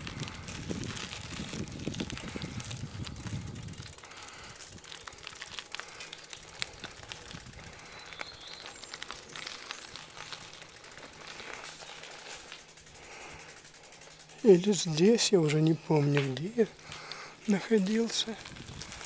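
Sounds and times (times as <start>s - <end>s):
wind rumble on microphone: 0.0s - 4.8s, 7.0s - 7.8s, 18.4s - 19.0s
bicycle tyres crackling over grit: 0.0s - 19.0s.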